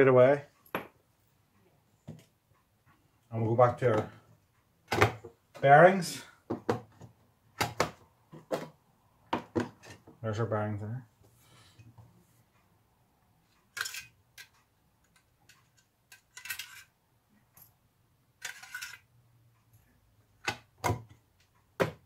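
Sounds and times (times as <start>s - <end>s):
small bearings rattling in metal tin: 18.4s - 19.0s.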